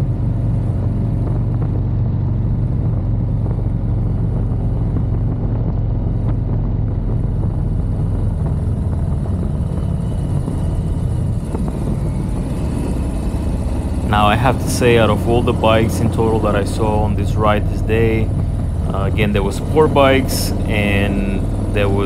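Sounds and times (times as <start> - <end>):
motorcycle engine running: 0.0 - 22.0
wind and road noise: 0.0 - 22.0.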